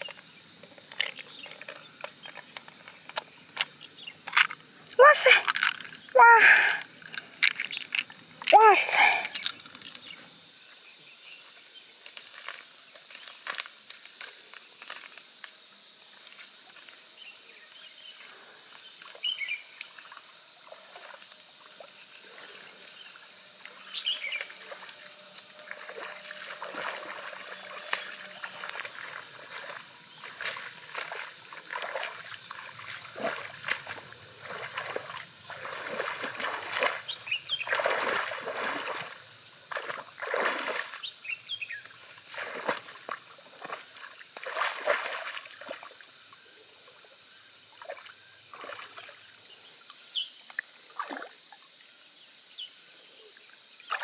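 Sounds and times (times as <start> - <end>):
wading splashing in water: 19.0 - 46.1, 47.7 - 49.3, 50.9 - 51.4.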